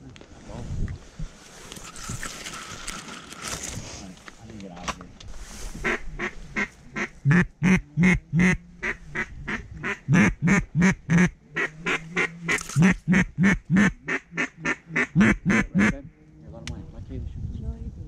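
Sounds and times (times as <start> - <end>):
duck call quacking: 5.8 - 16.0.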